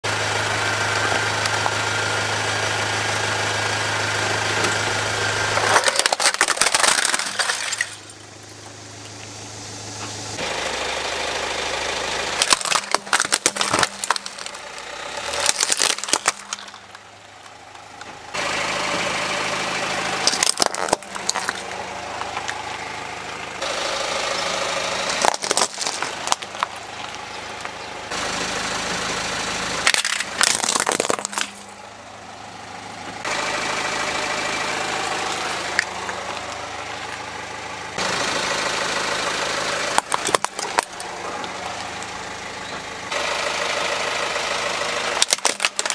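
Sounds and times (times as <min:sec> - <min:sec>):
car engine idling: 0:00.0 - 0:45.9
tyre crushing plastic toys: 0:05.5 - 0:08.1, 0:12.4 - 0:17.6, 0:20.2 - 0:22.6, 0:25.0 - 0:27.2, 0:29.8 - 0:31.8, 0:39.9 - 0:41.1, 0:45.2 - 0:45.9.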